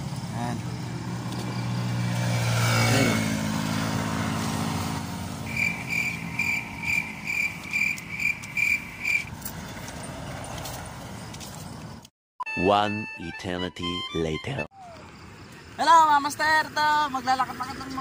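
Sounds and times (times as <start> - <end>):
vehicle passing close by: 0.0 - 12.0
steady road rumble: 0.0 - 12.1, 14.8 - 18.0.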